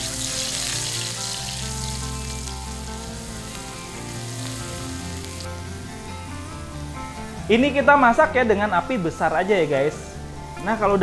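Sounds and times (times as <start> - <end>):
garlic sizzling in hot oil: 0.0 - 5.5.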